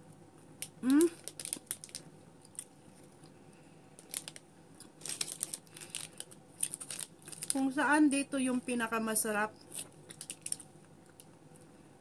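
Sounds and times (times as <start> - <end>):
plastic wrapper crinkling: 0.6 - 3.1, 4.0 - 7.9, 9.7 - 11.3.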